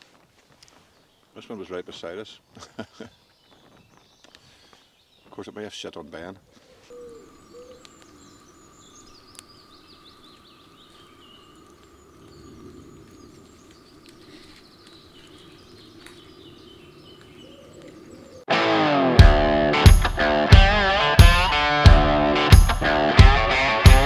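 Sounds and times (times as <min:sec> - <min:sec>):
outdoor background noise: 0:00.0 - 0:18.5
birds chirping and trilling: 0:00.6 - 0:18.5.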